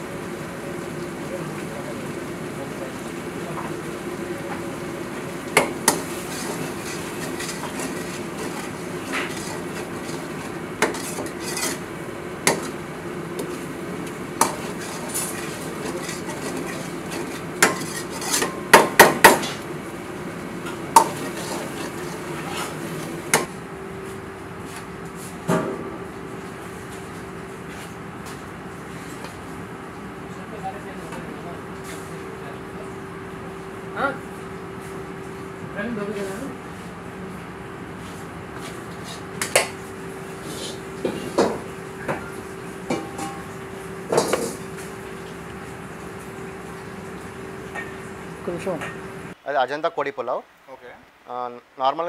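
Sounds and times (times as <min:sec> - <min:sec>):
kitchen hum: 0:00.0 - 0:49.4
metal ladle clanking on wok: 0:42.9 - 0:43.5.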